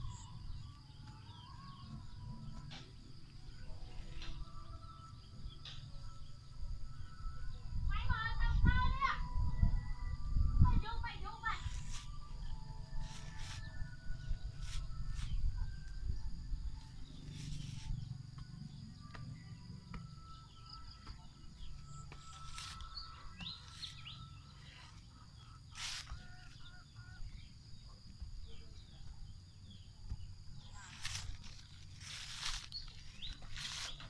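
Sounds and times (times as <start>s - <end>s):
bird chirps: 0.0s - 34.0s
shovel knocking and scraping soil: 32.1s - 34.0s.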